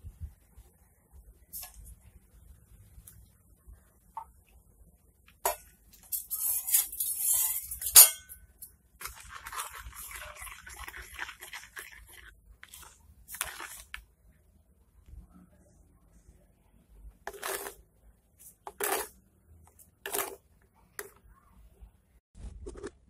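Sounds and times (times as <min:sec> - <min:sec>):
scoop stirring powder in plastic tub: 0:09.0 - 0:14.1, 0:17.2 - 0:17.8, 0:18.4 - 0:21.2.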